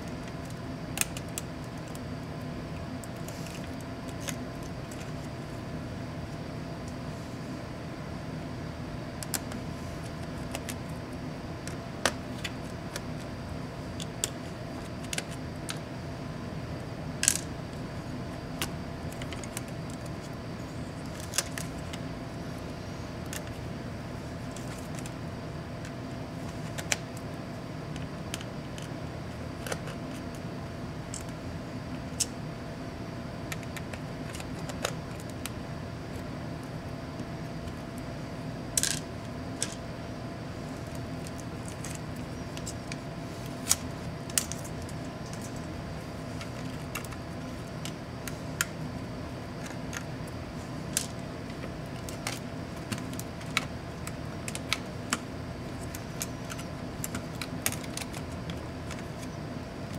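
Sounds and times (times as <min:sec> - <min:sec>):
small parts clicking and tapping: 0:00.0 - 0:02.0, 0:17.2 - 0:17.5, 0:26.6 - 0:27.3, 0:33.5 - 0:35.6, 0:38.7 - 0:39.8, 0:43.6 - 0:45.7, 0:50.9 - 0:59.9
steady low hum: 0:00.0 - 0:59.9.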